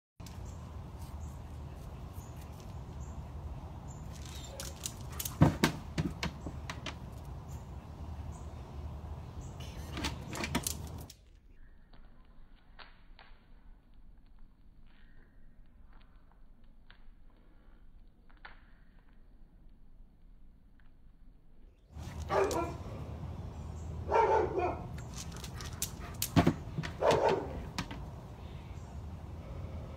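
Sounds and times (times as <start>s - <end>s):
clicks of dog claws: 4.1s - 7.3s, 9.9s - 11.2s, 22.0s - 22.8s, 24.9s - 28.0s
dog barking: 22.2s - 22.8s, 24.0s - 25.0s, 26.9s - 27.6s
thump: 26.3s - 28.0s.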